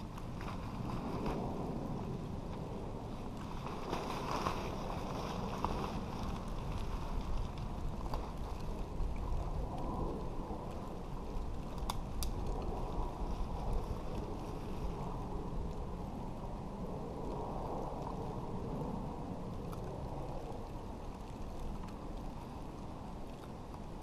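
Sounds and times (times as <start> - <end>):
tarp rustling: 0.0 - 1.8, 3.4 - 8.6
wind rumble on microphone: 0.0 - 24.0.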